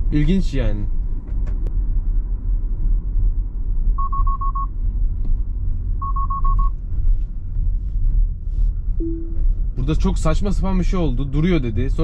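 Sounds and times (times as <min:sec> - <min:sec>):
low road rumble in car: 0:00.0 - 0:12.0
quick car alert beeps: 0:04.0 - 0:04.7, 0:06.0 - 0:06.7.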